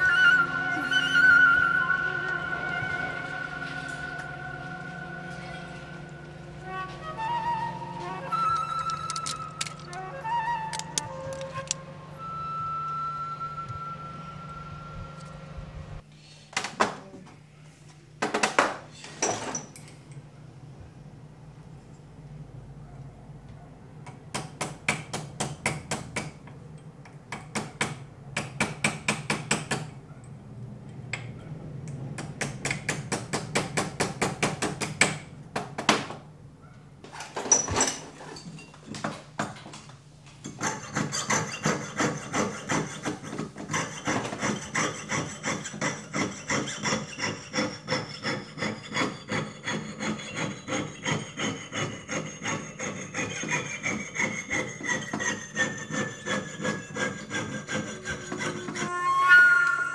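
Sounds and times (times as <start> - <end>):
saw cutting metal: 40.4 - 59.9.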